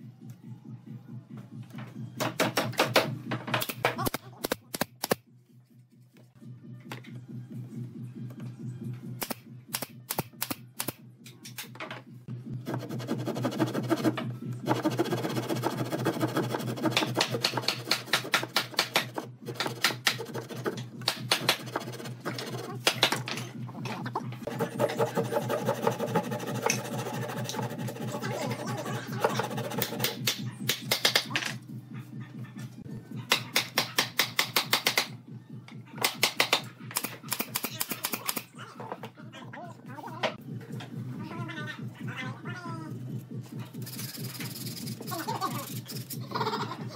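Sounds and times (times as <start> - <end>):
hand saw rasping: 12.7 - 20.8, 24.5 - 30.2.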